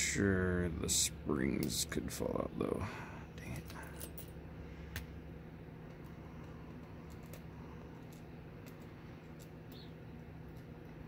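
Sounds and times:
steady low hum: 0.0 - 11.0
small lock parts clicking: 6.8 - 9.9.

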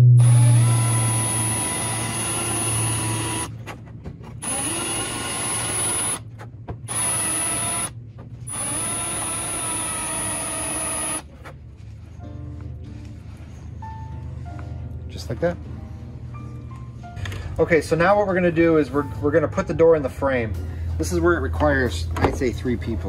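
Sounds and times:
cordless drill motor whining: 0.1 - 3.6, 4.4 - 6.2, 6.9 - 11.3.

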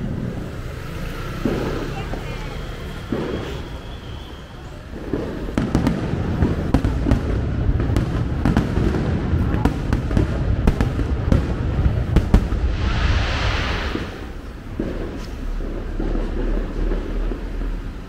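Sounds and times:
fireworks bangs: 0.0 - 18.0
hissing firework burst: 0.4 - 18.0
low rumble: 11.6 - 15.9.

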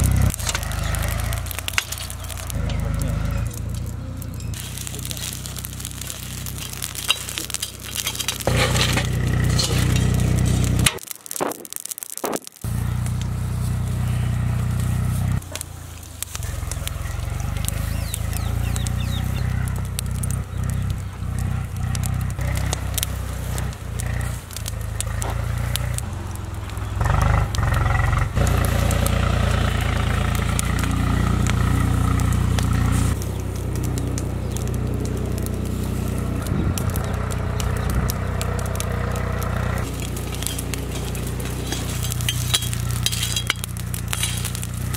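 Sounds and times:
steady low rumble: 0.0 - 11.0, 28.2 - 44.9
charcoal crackling and snapping: 0.0 - 44.9.

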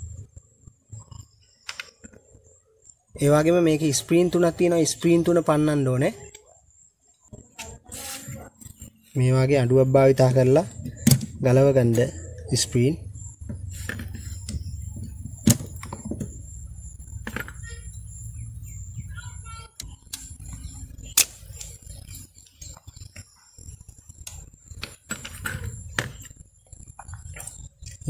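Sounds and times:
birds chirping: 8.4 - 28.0
low hum: 9.5 - 28.0
sharp metallic snaps: 19.8 - 21.9.

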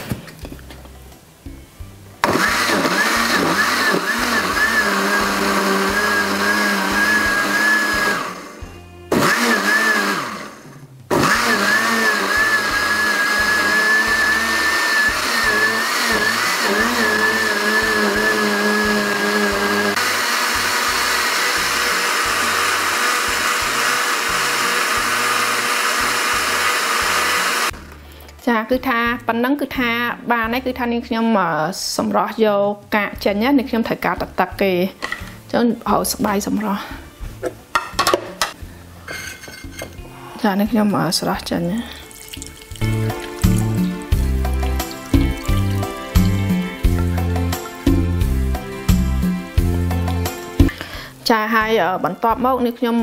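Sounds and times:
blender motor whirring: 2.2 - 27.8, 42.2 - 48.1.

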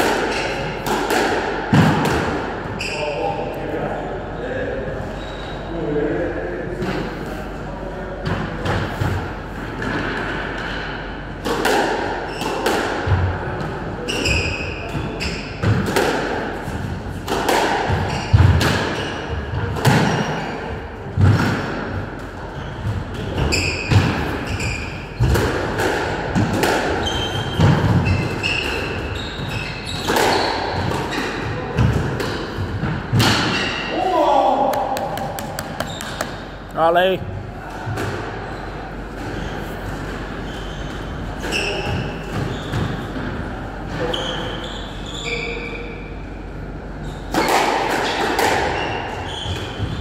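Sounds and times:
squash ball struck by rackets: 0.0 - 2.5, 8.3 - 13.4, 15.5 - 16.5, 17.2 - 20.3, 21.2 - 22.0, 25.2 - 29.0, 30.0 - 33.8, 34.7 - 36.6, 47.3 - 48.8
shoes squeaking on wooden floor: 27.0 - 31.4, 35.4 - 36.7.

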